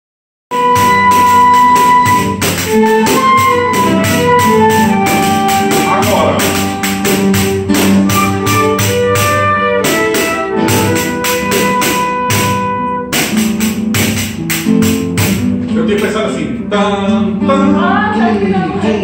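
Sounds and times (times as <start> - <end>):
flute melody: 0.5 - 13.4
tambourine beat: 0.5 - 15.5
acoustic guitars strummed: 0.5 - 19.0
violin melody: 0.5 - 19.0.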